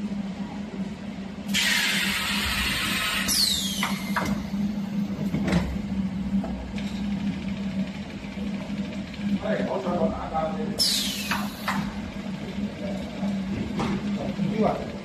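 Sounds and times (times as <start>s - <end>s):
steady machine hum: 0.0s - 15.0s
compressed air hiss with falling whistle: 1.5s - 4.1s
press and conveyor clunks: 5.2s - 5.9s.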